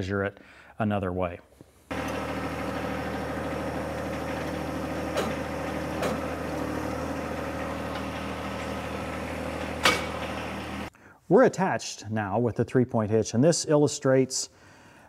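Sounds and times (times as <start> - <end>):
tractor diesel engine idling: 1.9 - 10.9.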